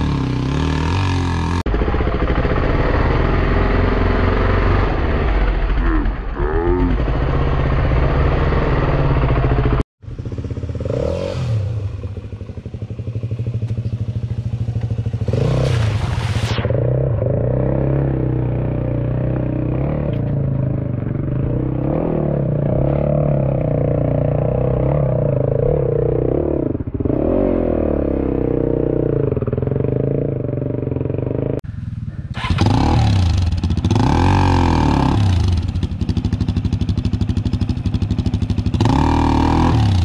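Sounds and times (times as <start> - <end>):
dirt bike engine revving: 0.0 - 40.0.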